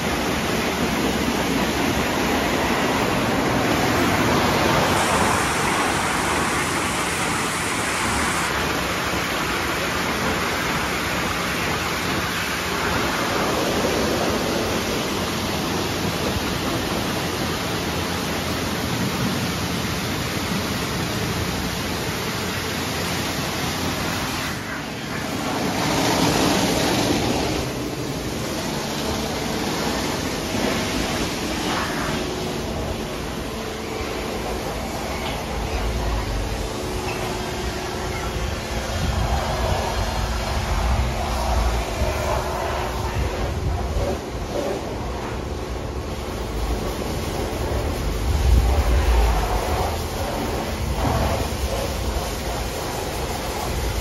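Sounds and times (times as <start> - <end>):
car wash brushes slapping: 0.0 - 54.0
water spraying: 0.0 - 54.0.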